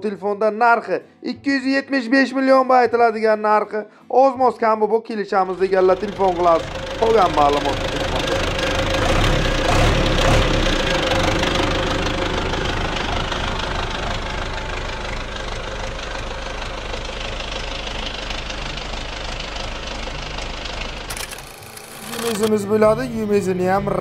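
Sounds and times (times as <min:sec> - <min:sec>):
tractor diesel engine idling: 0:05.6 - 0:24.0.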